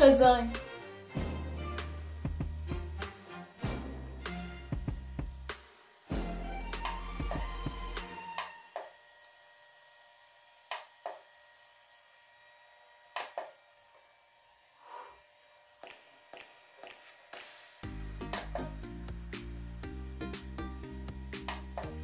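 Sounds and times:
faint device whine: 4.7s - 22.0s.

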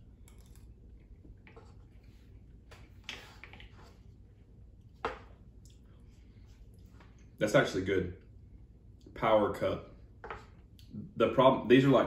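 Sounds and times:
low room hum: 0.0s - 12.0s.

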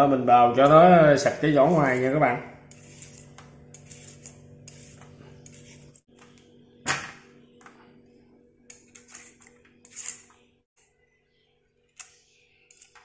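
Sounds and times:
grater scraping carrot: 1.6s - 6.1s.

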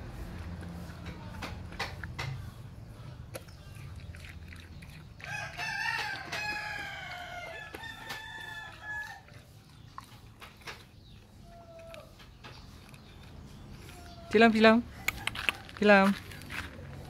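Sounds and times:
dog chewing: 0.0s - 17.0s
rooster crowing: 5.3s - 9.3s.

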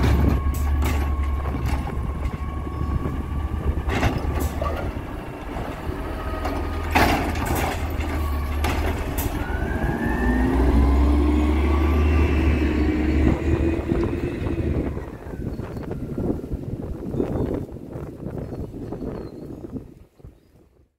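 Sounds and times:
garbage truck engine running: 0.0s - 16.1s
hydraulic whine: 0.0s - 16.1s.

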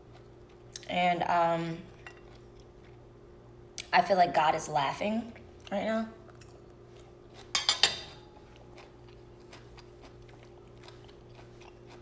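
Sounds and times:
faint chewing: 1.9s - 3.0s, 8.2s - 12.0s
metal fork clinking on a plate: 7.6s - 8.2s.

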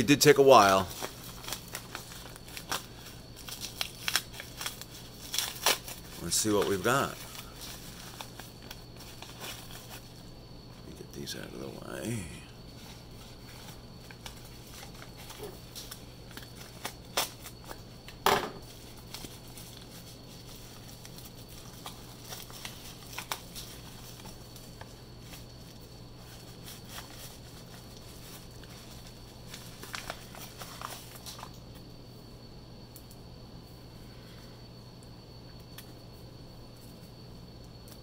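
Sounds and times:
low steady hum: 0.0s - 38.0s
paper crinkling and rustling: 0.6s - 10.2s, 18.7s - 31.6s.

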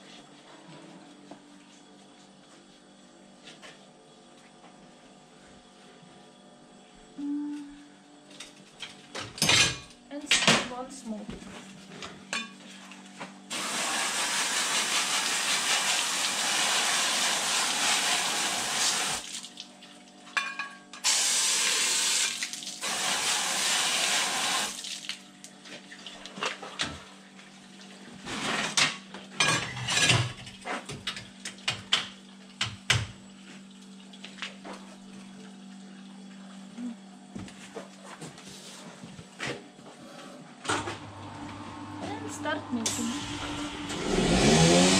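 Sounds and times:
low machine hum: 0.1s - 13.5s, 33.2s - 44.9s
water spraying from hose: 13.5s - 19.6s, 21.0s - 25.2s.

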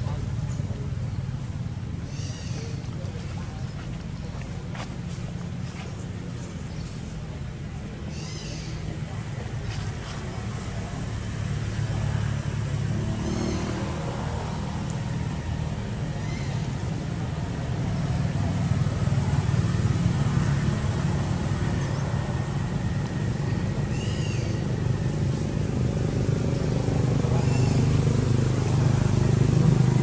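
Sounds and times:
vehicle engine rumble: 0.0s - 30.0s.

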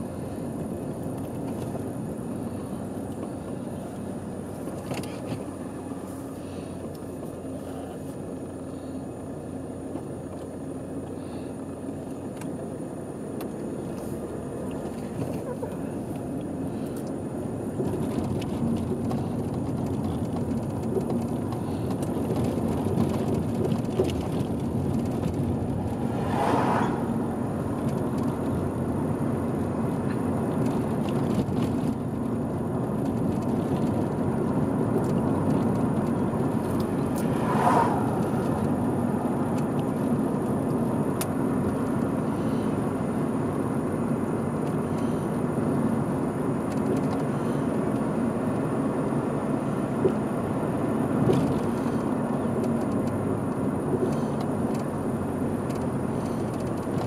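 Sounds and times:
car road and tyre noise: 0.0s - 57.0s
vehicle swishing past: 25.1s - 28.6s, 36.4s - 39.6s.

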